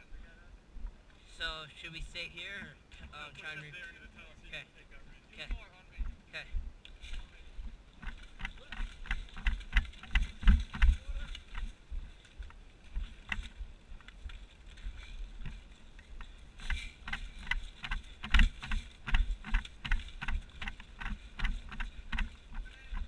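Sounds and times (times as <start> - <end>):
footsteps through dry grass: 5.4 - 23.0.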